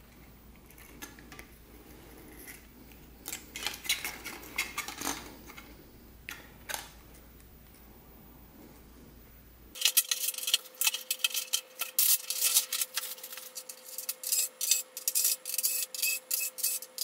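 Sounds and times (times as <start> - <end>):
plastic parts clicking and rattling: 3.2 - 5.7, 6.3 - 7.0, 9.8 - 17.0.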